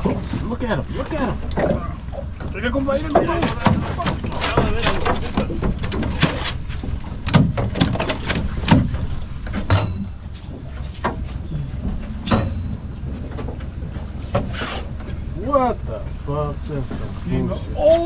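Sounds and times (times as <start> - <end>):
boat engine rumble: 0.0 - 18.0
sharp knocks and clicks: 3.2 - 15.1.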